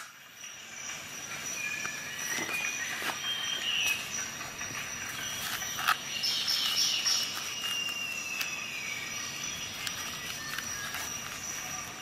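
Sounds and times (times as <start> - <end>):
material rubbing and squeaking: 9.6 - 12.0.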